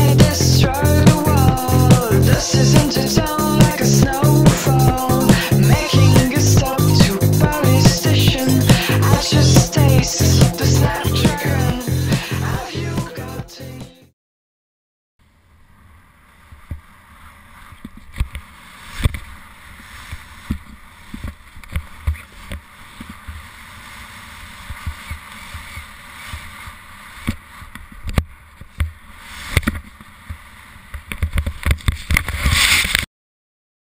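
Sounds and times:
skis thumping on snow: 16.5s - 33.0s
skis hissing through snow: 18.4s - 27.7s, 29.0s - 30.8s, 32.3s - 33.0s.

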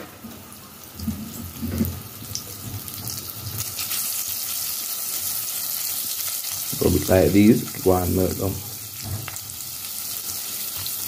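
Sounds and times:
butter sizzling in a pot: 0.1s - 11.0s.

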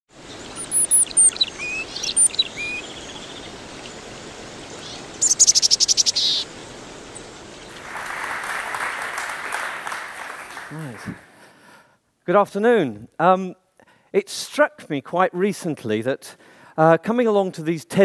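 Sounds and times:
birds chirping and whistling: 0.2s - 7.8s
audience applauding: 7.7s - 11.4s.

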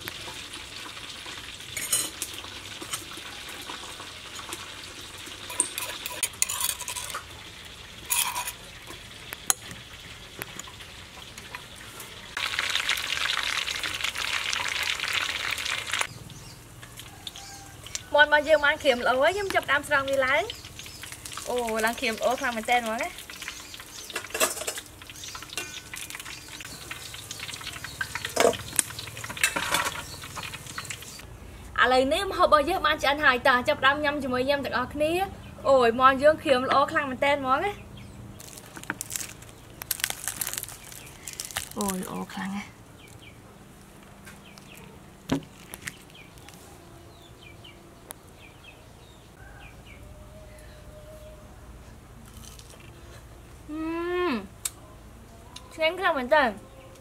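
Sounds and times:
hot oil sizzling and crackling: 0.0s - 31.3s, 38.4s - 43.4s
small birds chirping: 15.9s - 24.3s, 25.0s - 31.3s, 37.7s - 51.4s.

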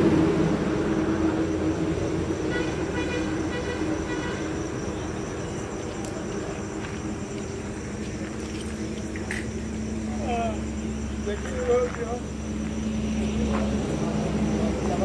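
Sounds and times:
road traffic hum: 0.0s - 15.0s
faint vehicle horn: 2.4s - 4.6s.

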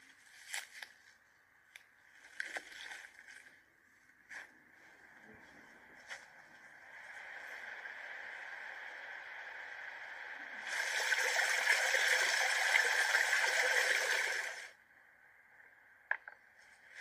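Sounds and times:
faint steady water rush: 5.0s - 14.8s
water pouring and splashing: 10.6s - 14.7s.

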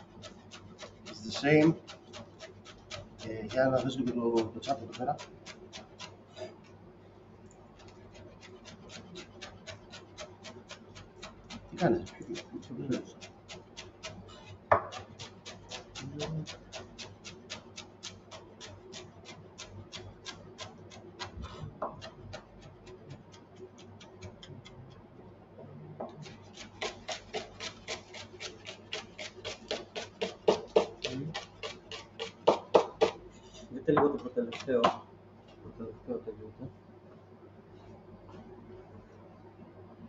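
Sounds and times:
knife chopping on cutting board: 0.2s - 6.6s, 7.8s - 19.1s, 26.1s - 33.2s, 34.0s - 35.0s.

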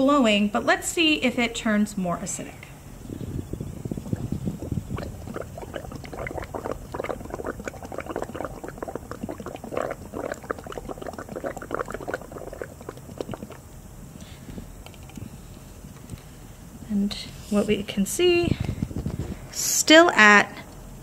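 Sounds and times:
bubbling through straw into water: 3.1s - 13.7s.

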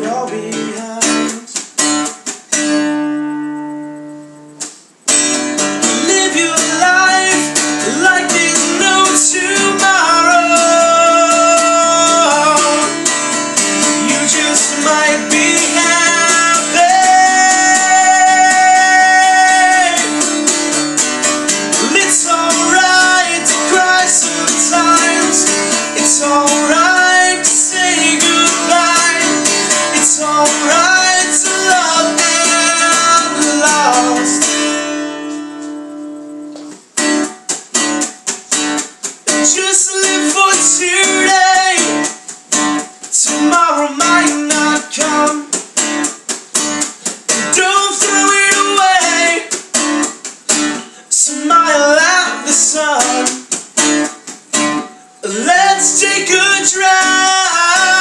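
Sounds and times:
man singing: 0.0s - 1.7s, 5.8s - 20.8s, 21.6s - 34.8s, 39.3s - 42.3s, 43.0s - 45.7s, 47.3s - 49.6s, 50.8s - 53.6s, 55.2s - 58.0s
acoustic guitar strumming: 0.0s - 58.0s.

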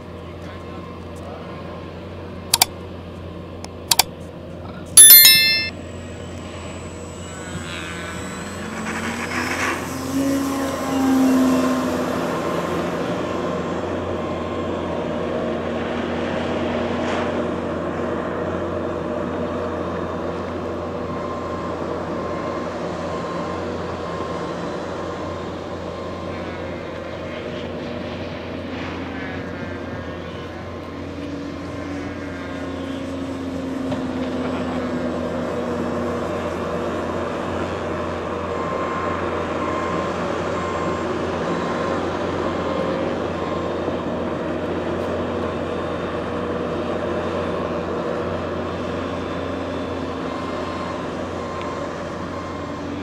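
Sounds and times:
model airplane engine droning: 0.0s - 4.8s, 5.8s - 53.0s
sharp clicks: 2.5s - 2.7s
bell chime: 5.0s - 5.8s.

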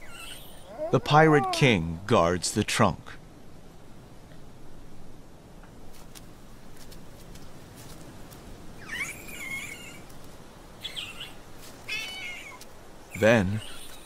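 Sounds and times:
infant monkey crying: 0.0s - 1.9s, 8.8s - 10.1s, 10.8s - 14.0s.

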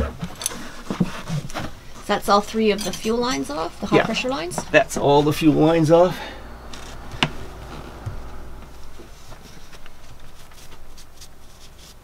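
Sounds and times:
steady low hum: 1.4s - 11.9s.

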